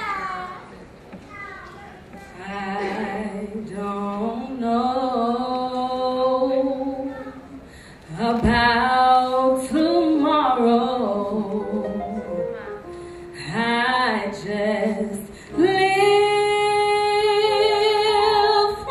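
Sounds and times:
woman singing into a microphone: 2.4 - 7.2, 8.0 - 12.3, 13.3 - 18.9.

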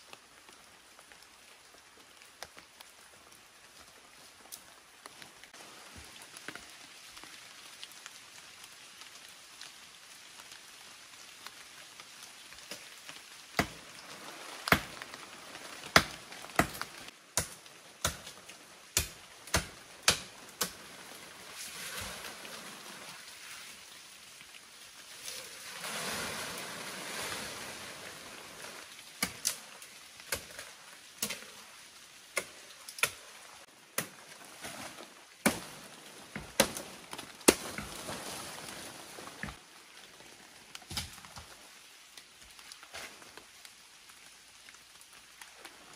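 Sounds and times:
leaves and branches rustling: 0.0 - 45.9
blade chopping wood: 19.0 - 20.8.

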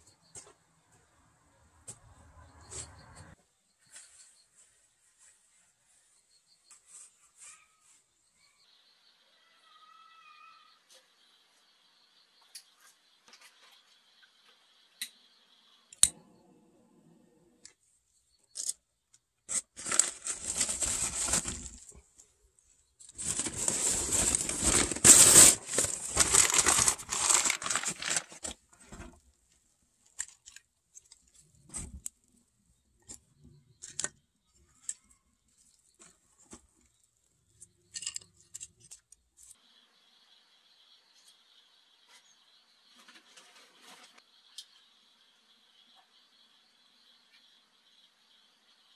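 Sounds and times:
paper burning crackling: 19.5 - 22.0, 23.1 - 28.7.

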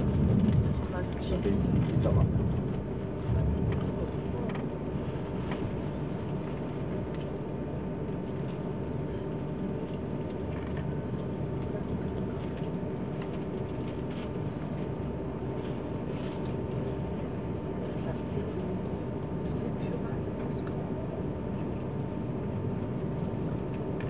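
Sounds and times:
train wheels rumbling on rails: 0.0 - 4.6
faint clicks and rattles: 0.0 - 7.4
thin steady hum: 0.0 - 24.0.

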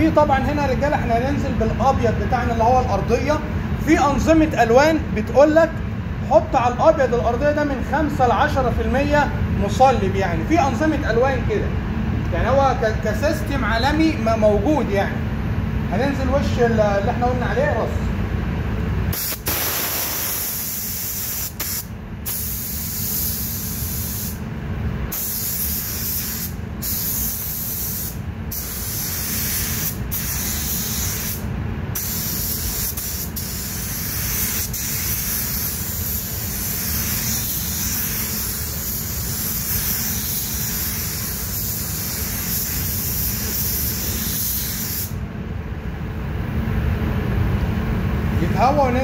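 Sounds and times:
steady low rumble: 0.0 - 44.1
spray gun hissing: 19.1 - 24.4, 25.1 - 31.4, 32.0 - 45.2.

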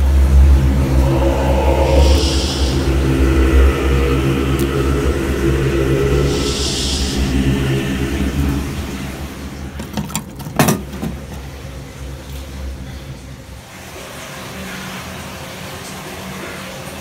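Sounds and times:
low droning rumble: 0.0 - 13.4.

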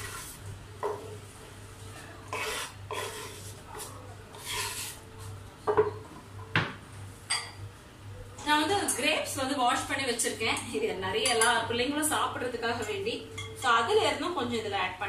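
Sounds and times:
knife scraping wooden board: 2.3 - 3.5, 4.4 - 5.0.

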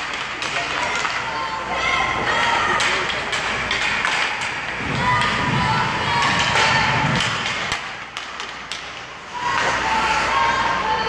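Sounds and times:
hockey sticks and puck knocking: 0.0 - 1.4, 2.4 - 9.9
children's voices: 0.8 - 3.1, 4.7 - 7.5, 9.3 - 11.0.

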